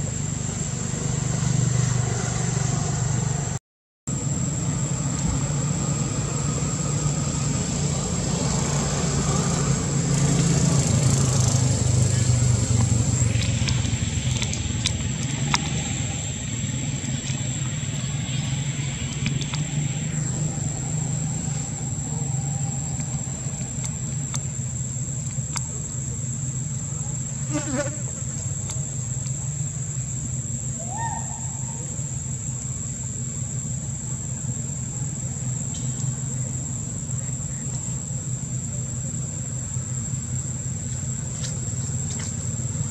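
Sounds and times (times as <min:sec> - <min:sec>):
low steady rumble: 0:00.0 - 0:42.9.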